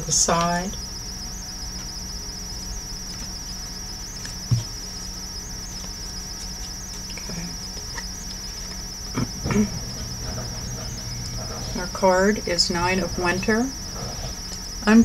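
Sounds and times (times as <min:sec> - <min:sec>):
high-pitched insect trill: 0:00.0 - 0:15.0
soft low thump: 0:04.5 - 0:04.8.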